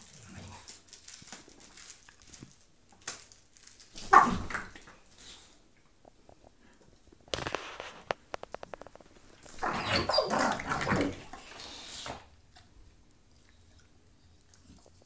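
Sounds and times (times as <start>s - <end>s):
dogs growling and snarling: 9.5s - 11.9s.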